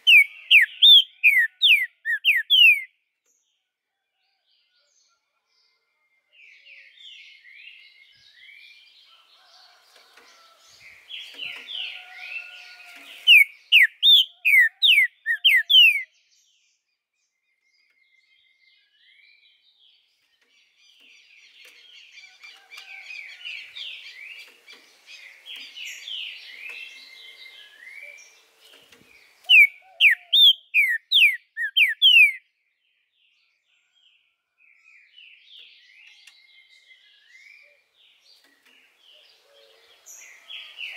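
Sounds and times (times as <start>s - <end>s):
bird singing whistled notes: 0.0s - 3.0s, 13.2s - 16.6s, 29.3s - 32.5s
soft bird twitter: 0.0s - 3.4s, 11.2s - 21.8s, 25.2s - 32.4s.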